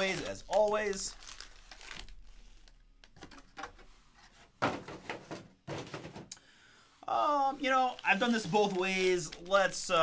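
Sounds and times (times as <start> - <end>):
foil packs rustling: 0.0 - 2.4, 7.6 - 10.0.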